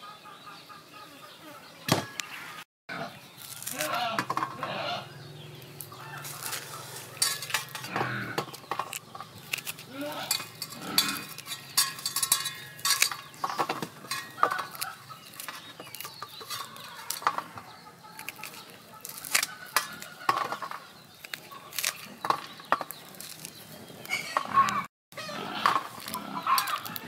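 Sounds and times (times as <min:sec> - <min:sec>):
knife scraping corn: 0:03.4 - 0:05.0, 0:06.0 - 0:27.0
kernels clicking on a metal tray: 0:06.4 - 0:08.0, 0:08.6 - 0:17.4, 0:25.7 - 0:27.0.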